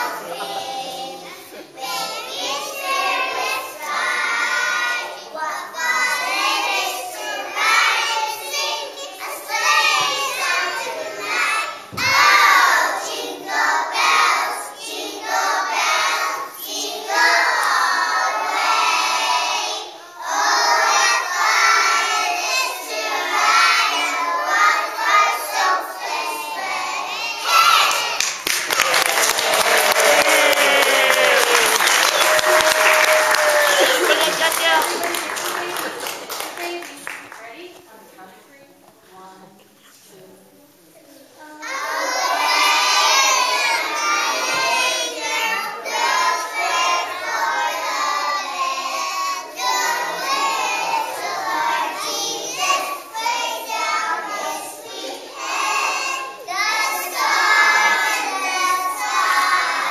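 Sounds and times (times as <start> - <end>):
children singing: 0.0 - 28.3, 41.4 - 59.9
applause: 27.9 - 37.6.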